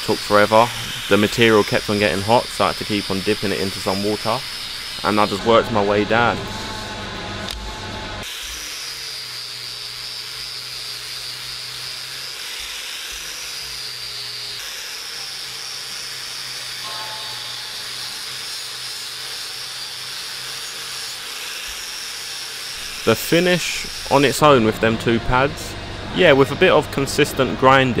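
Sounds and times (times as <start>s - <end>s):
angle grinder whining: 0.0s - 26.7s.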